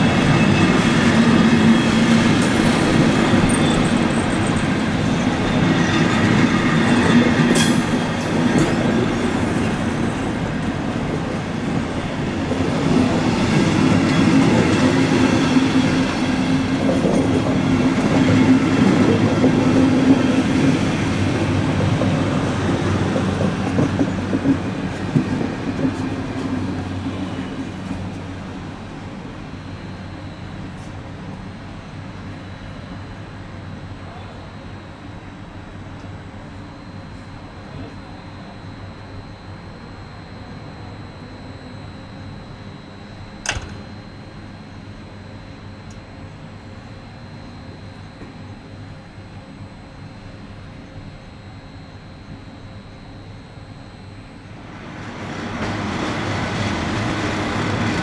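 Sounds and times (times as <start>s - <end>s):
train wheels rumbling: 0.0s - 29.7s, 54.7s - 58.0s.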